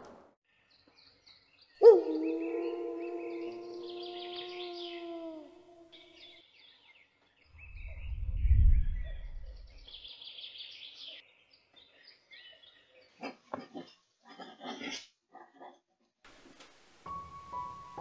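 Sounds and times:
birdsong: 0.4 - 14.1
wolf howl: 1.8 - 6.3
deep rumble: 7.6 - 9.9.

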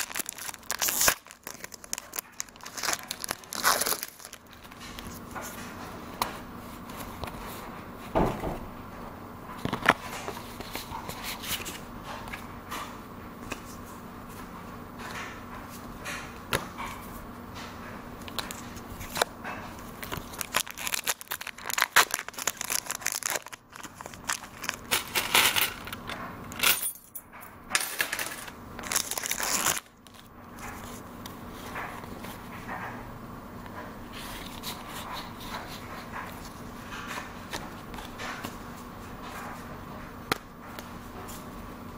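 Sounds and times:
foil wrapper tearing and crinkling: 0.0 - 5.1, 20.0 - 25.2, 28.8 - 30.3.

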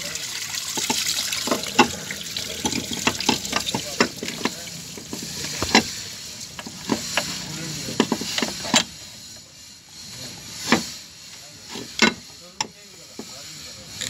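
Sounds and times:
hand tools clicking and knocking: 0.7 - 9.1, 11.7 - 13.4.

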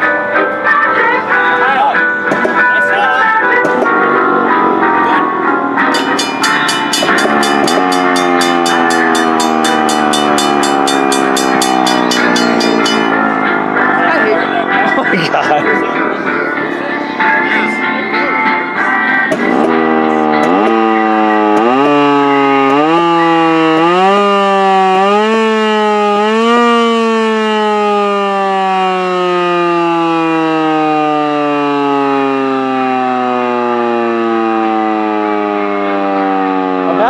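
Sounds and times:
electromechanical siren wailing: 4.3 - 14.8, 19.5 - 37.0.

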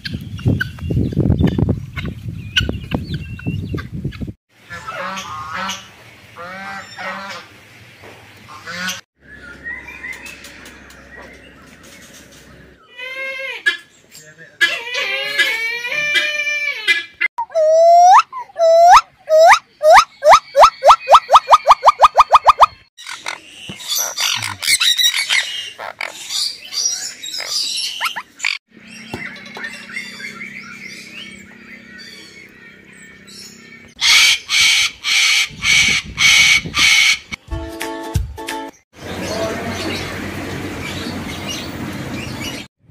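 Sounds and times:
cockatoo screeching: 14.6 - 26.2, 34.0 - 37.4
parrot squawking: 14.6 - 28.6, 34.0 - 37.4.

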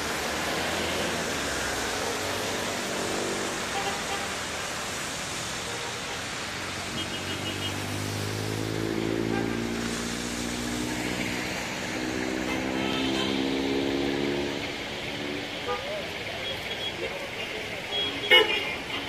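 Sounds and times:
rain and wet road noise: 0.0 - 19.0
vehicle engine hum: 6.4 - 19.0.

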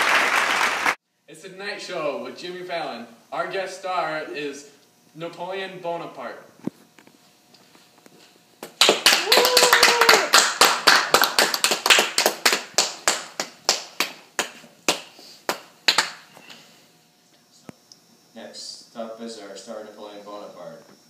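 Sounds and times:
people clapping: 0.0 - 1.0, 8.6 - 16.2
vocal cheer: 9.1 - 10.4.

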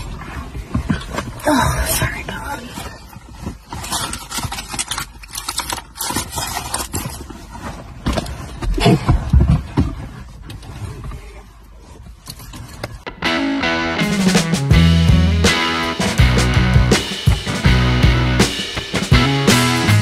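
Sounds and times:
clothing rustling: 0.0 - 13.1.

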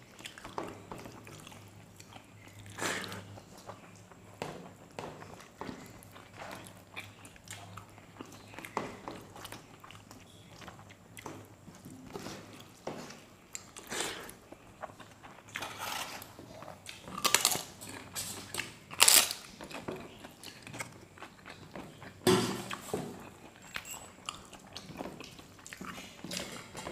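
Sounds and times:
chewing: 0.0 - 26.9
crisp crunches of bitten wafers: 18.9 - 19.5.

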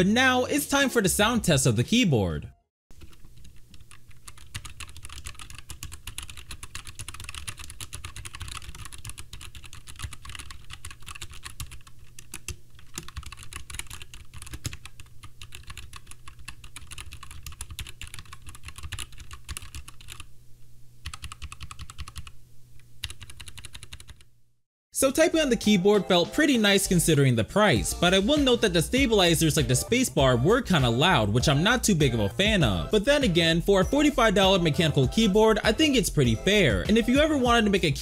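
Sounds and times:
mechanical keyboard typing: 3.0 - 20.3, 21.0 - 22.4, 23.0 - 24.3.

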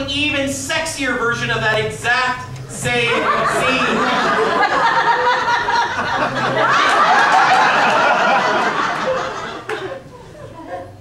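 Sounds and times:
audience laughing loudly: 2.8 - 11.0.

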